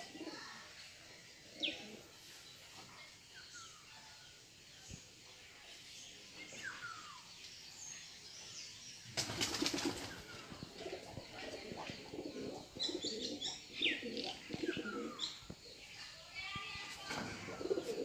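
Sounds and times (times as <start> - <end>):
birds chirping: 0.0 - 18.0
loud rustling flutter of wings: 9.0 - 10.8
low cooing calls: 10.5 - 15.4.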